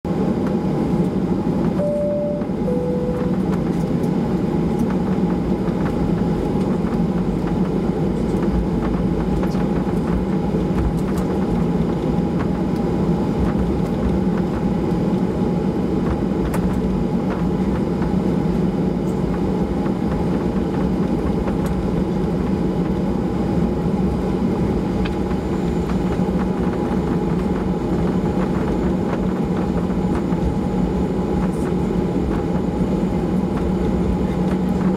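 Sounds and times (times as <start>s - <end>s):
aircraft cabin engine drone: 0.1s - 34.9s
two-note cabin chime: 1.8s - 3.5s.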